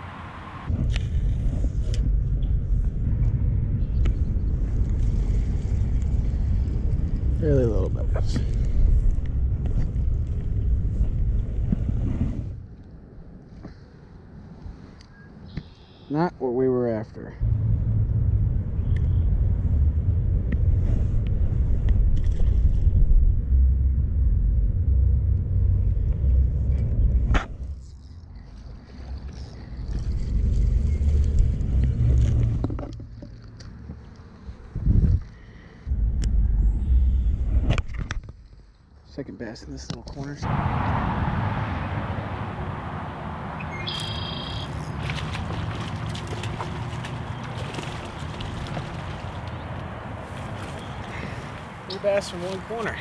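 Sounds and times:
wind rumbling on microphone: 0.0s - 13.7s, 17.4s - 38.8s, 39.7s - 53.0s
fishing reel and rod clicks: 27.6s - 31.5s
wind buffeting microphone: 34.5s - 35.3s, 44.7s - 53.0s.

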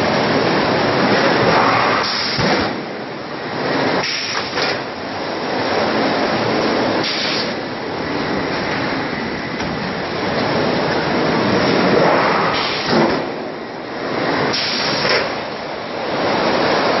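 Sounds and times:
steady machine noise: 0.0s - 17.0s
short hisses: 7.0s - 7.6s.

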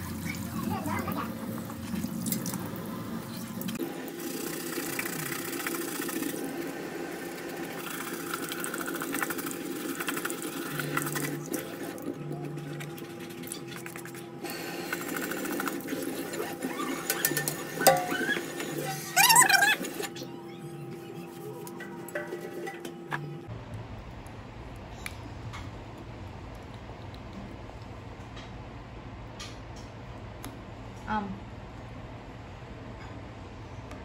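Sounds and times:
tap water running into sink: 7.3s - 12.1s
toothbrush scrubbing wet shoe: 7.8s - 20.1s.

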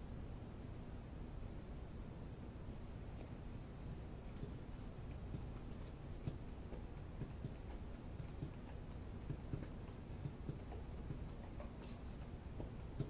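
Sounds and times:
low steady hum: 0.0s - 13.0s
faint ticking clicks: 4.0s - 13.0s.

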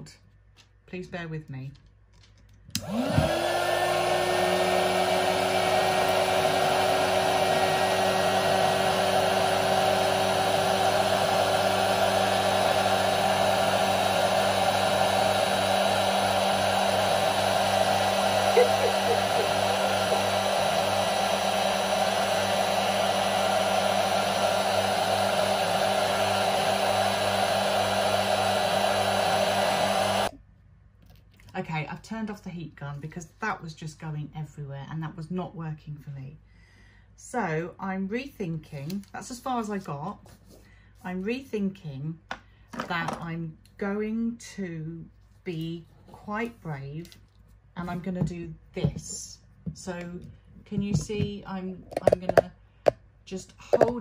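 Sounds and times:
heat gun blowing air: 2.8s - 30.3s.

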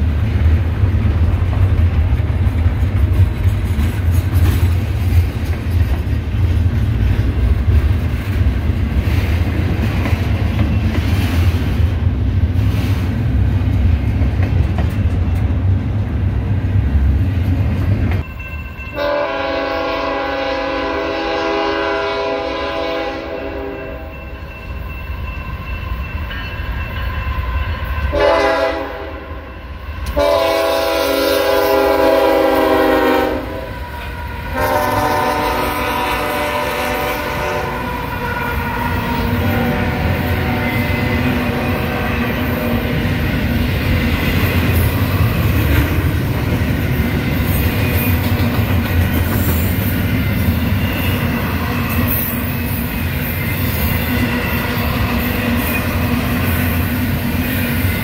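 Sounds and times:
freight train rumble and wheel clatter: 0.0s - 58.0s
locomotive air horn blasts: 19.0s - 24.1s, 28.1s - 29.5s, 30.1s - 42.7s.

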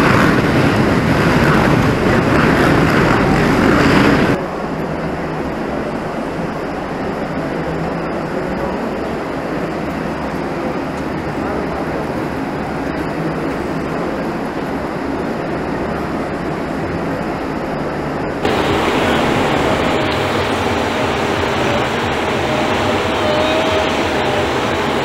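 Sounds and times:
faint wavering whine: 14.9s - 25.0s.

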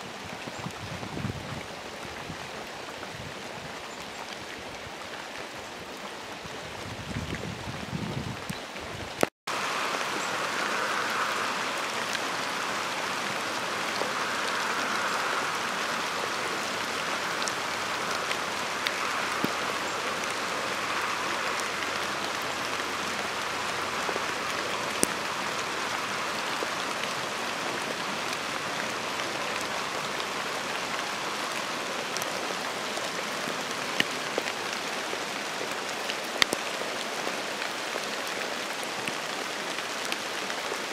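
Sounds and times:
steady rain falling: 0.0s - 40.9s
raindrop ticks: 8.4s - 37.7s.

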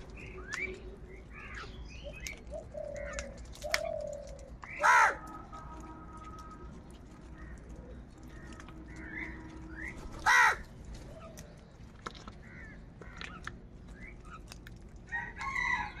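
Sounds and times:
beaks pecking at grain: 0.0s - 15.9s
crows cawing: 4.7s - 5.4s, 10.1s - 10.7s.

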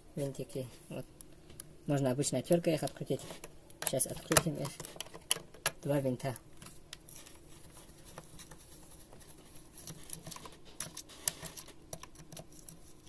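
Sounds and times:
screwdriver clicks and scratches: 9.9s - 13.0s.

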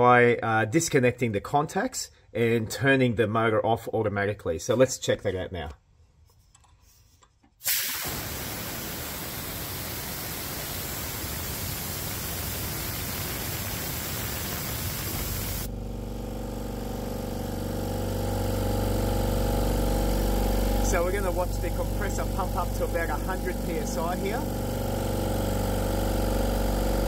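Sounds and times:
compressed air hissing from valve: 7.6s - 15.7s
compressor motor and pump running: 7.6s - 27.0s.

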